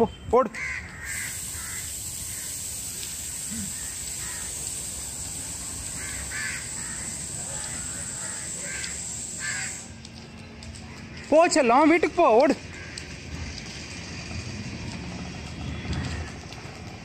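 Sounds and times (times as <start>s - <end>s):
steady background noise: 0.0s - 17.0s
crows cawing: 0.6s - 2.6s, 3.6s - 4.6s, 5.9s - 9.9s, 10.8s - 11.4s, 12.6s - 13.2s.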